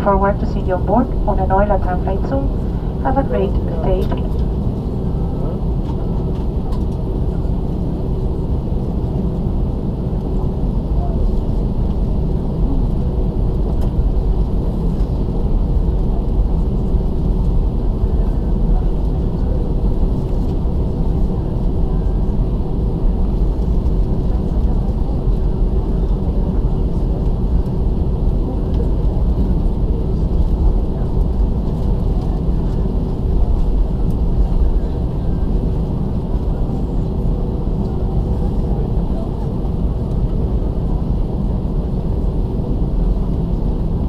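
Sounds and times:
faint steady hum: 0.0 - 4.6
airliner rolling on taxiway: 0.0 - 44.0
jet engines idling: 0.0 - 44.0.

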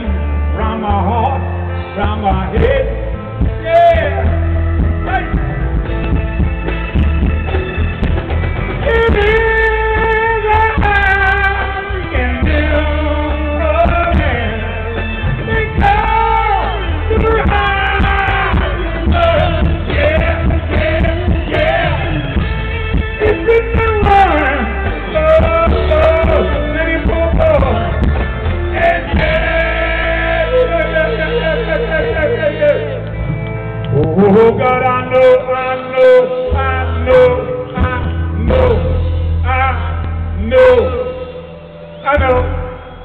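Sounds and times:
heavy bass: 0.0 - 43.0
live rock band playing: 0.0 - 43.0
singer holding long notes: 8.7 - 43.0.

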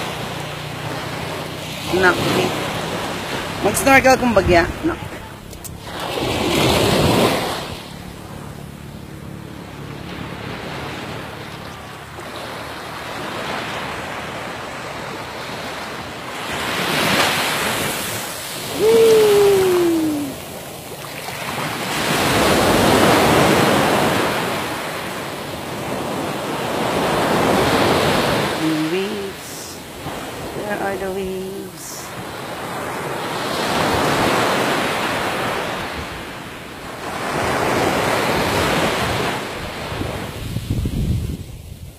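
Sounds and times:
small waves breaking on beach: 0.0 - 41.9
wind on microphone: 17.7 - 20.8, 38.4 - 41.9.

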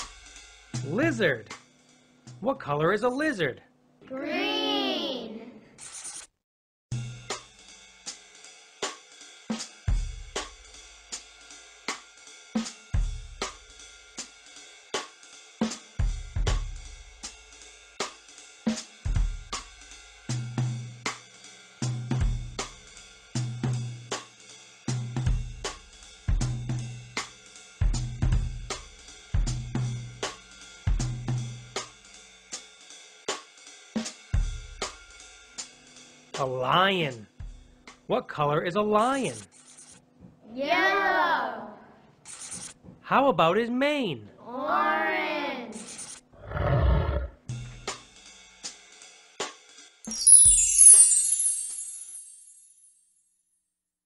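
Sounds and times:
drum kit beat: 0.0 - 1.7, 6.9 - 36.7, 47.4 - 49.0.

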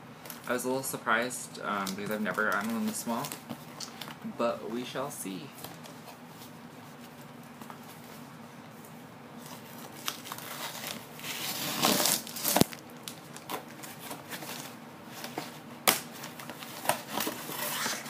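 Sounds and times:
packing material crinkling: 1.8 - 4.2, 8.8 - 18.0.

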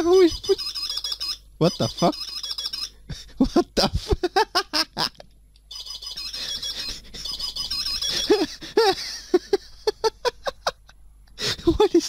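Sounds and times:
electronic bird-call doorbell melody: 0.4 - 3.0, 5.7 - 8.5.

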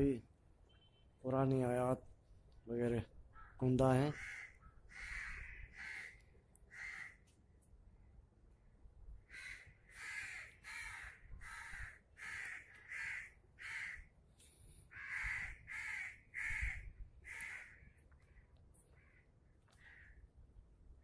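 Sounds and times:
crows cawing: 3.3 - 7.3, 9.3 - 14.1, 14.9 - 20.2.

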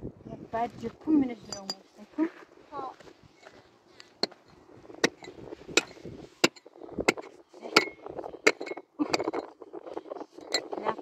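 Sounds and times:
pick striking stony ground: 4.0 - 9.3.

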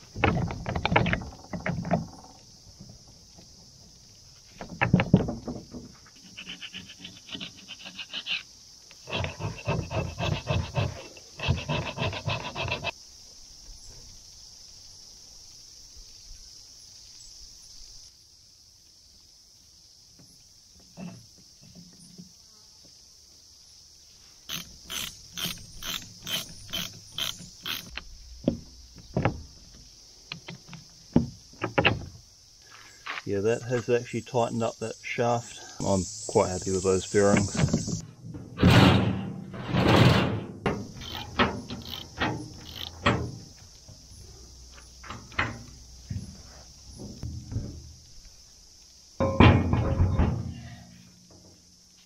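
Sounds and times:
metal knocks: 49.2 - 50.6.

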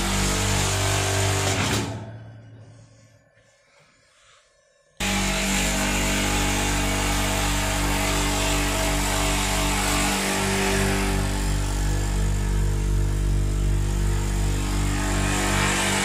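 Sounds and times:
electric motor humming and whirring: 5.0 - 16.0.

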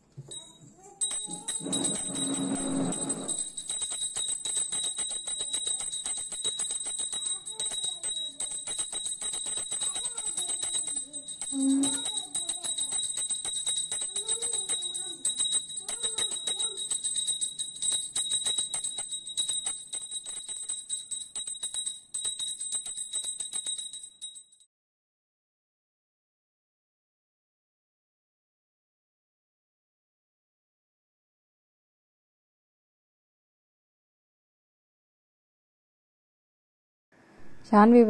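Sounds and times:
brass bell ringing fast: 0.3 - 24.4.

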